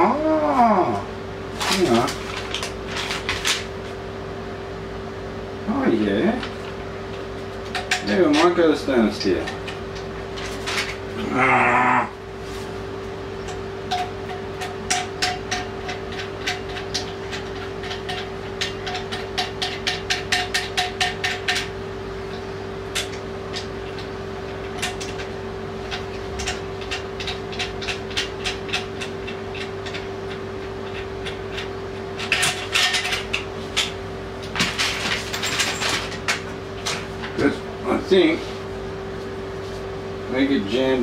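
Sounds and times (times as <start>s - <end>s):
steady low hum: 0.0s - 41.0s
clicks and taps of hard parts: 13.4s - 21.7s.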